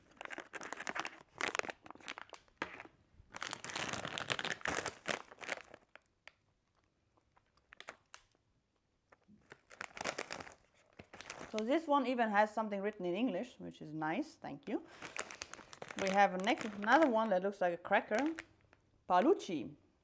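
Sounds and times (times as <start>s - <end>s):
plastic packets crinkling: 0.0s - 8.4s, 9.2s - 11.9s, 14.9s - 18.9s.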